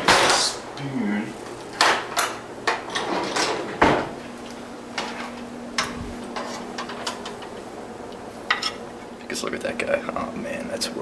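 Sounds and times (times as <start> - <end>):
faint steady hum: 0.0 - 11.0
utensils and plate clicking: 5.8 - 8.8.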